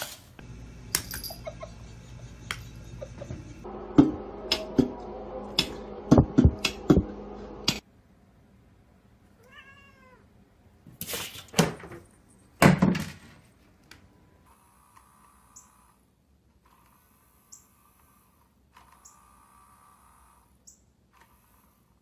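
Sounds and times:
cat meowing: 0:09.4 - 0:10.3.

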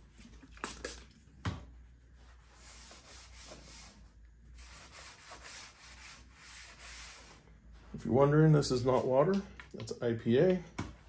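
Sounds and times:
spray bottle spritzing: 0:00.5 - 0:01.1
paper towel rubbing a surface: 0:01.9 - 0:09.1.

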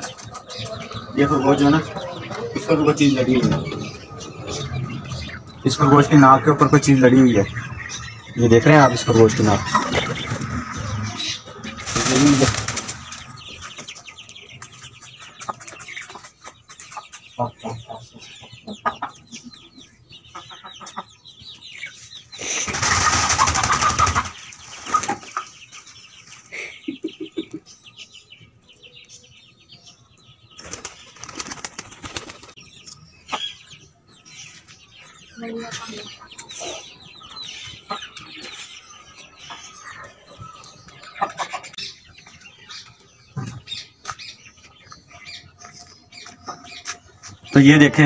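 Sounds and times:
birds flapping wings: 0:11.7 - 0:13.5, 0:22.4 - 0:25.3, 0:30.6 - 0:32.6.

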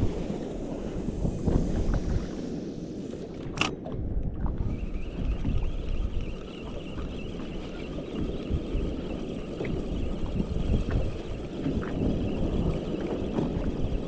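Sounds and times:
wind on microphone: 0:00.0 - 0:14.0
water sloshing against hull: 0:03.1 - 0:14.0
sharp click: 0:03.4 - 0:03.9.

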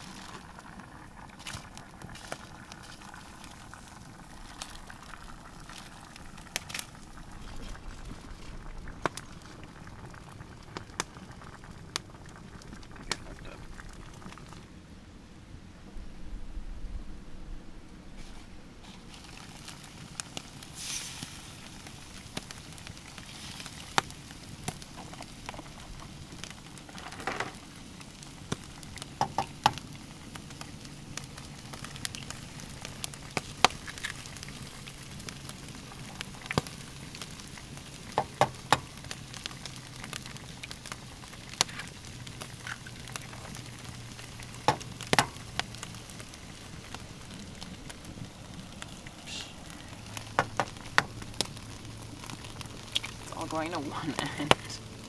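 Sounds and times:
eggs sizzling in a frying pan: 0:00.0 - 0:14.7, 0:19.0 - 0:55.0
eggs cracking with clicks: 0:21.6 - 0:54.8.

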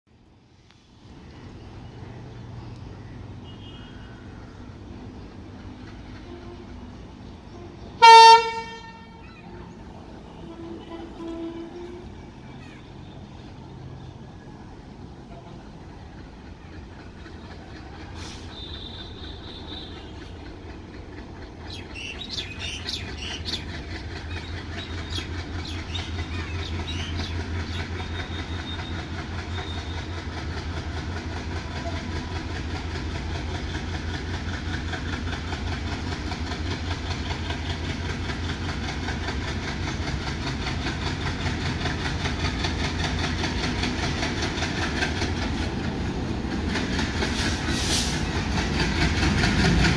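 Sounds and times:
diesel locomotive engine rumble: 0:00.1 - 0:49.9.

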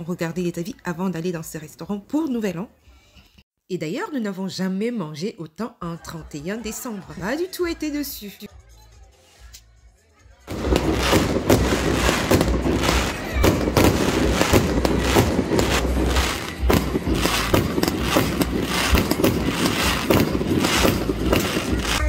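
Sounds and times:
fireworks banging and crackling: 0:10.5 - 0:22.0.

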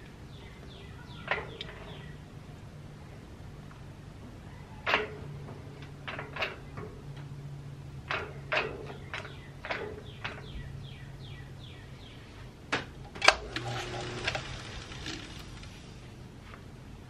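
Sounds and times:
metal lathe humming: 0:13.3 - 0:15.9.

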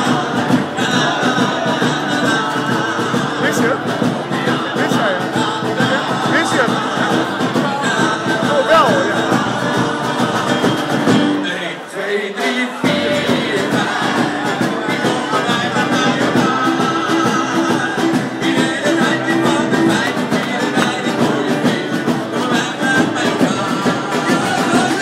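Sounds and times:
loud music with singing: 0:00.0 - 0:25.0.

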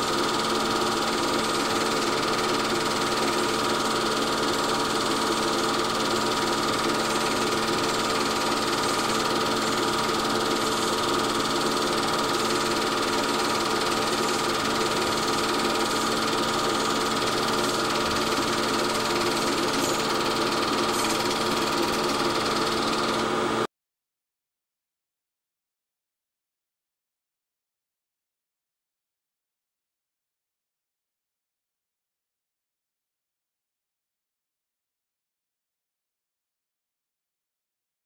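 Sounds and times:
film projector whirring: 0:00.0 - 0:23.7.

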